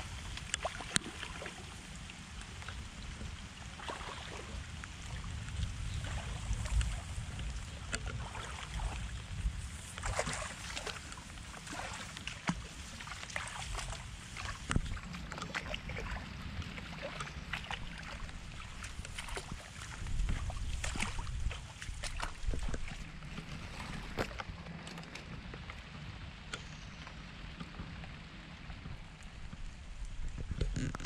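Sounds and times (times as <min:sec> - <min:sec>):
splashes: 0:00.0 - 0:24.5
bare feet in wet grass: 0:00.0 - 0:26.4
rain and running water: 0:00.0 - 0:31.0.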